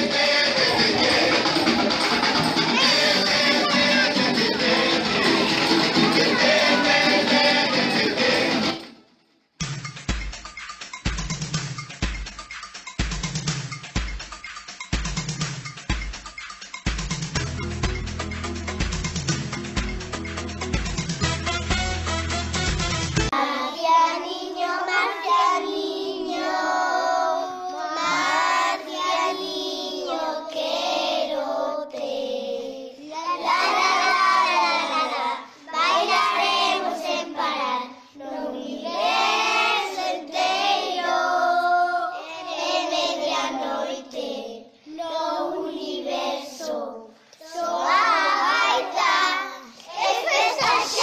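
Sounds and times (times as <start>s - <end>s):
children singing: 0.0s - 9.0s, 23.3s - 51.0s.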